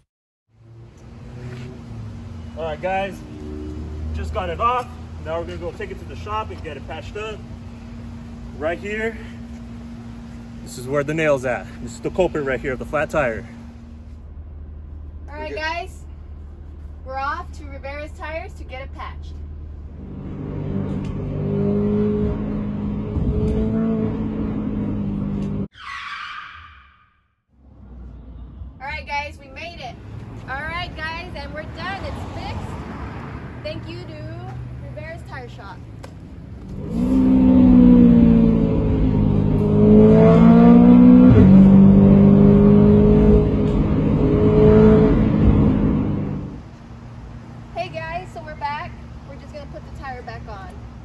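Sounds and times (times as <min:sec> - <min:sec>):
car engine running hard: 0:00.6 - 0:25.7, 0:36.4 - 0:49.4
high-pitched squeal: 0:25.7 - 0:27.3.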